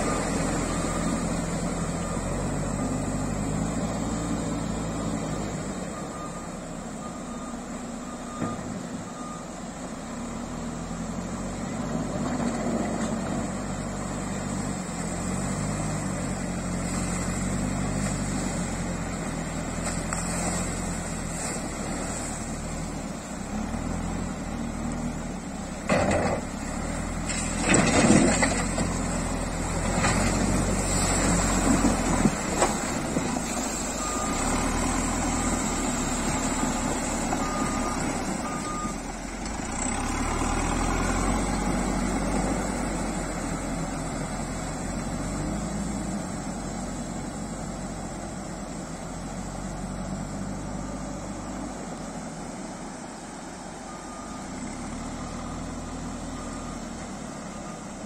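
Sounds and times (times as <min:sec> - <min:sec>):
reversing alarm beeps: 0:00.0 - 0:09.6, 0:33.9 - 0:39.0
diesel engine under load: 0:00.0 - 0:58.0
water churning around wheels: 0:10.9 - 0:58.0.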